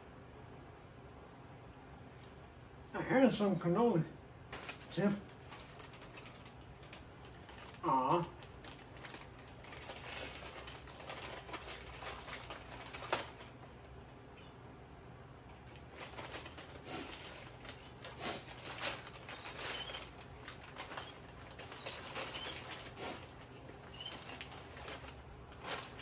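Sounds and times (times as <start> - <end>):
paper packaging crinkling: 4.5 - 14.0, 15.6 - 26.0.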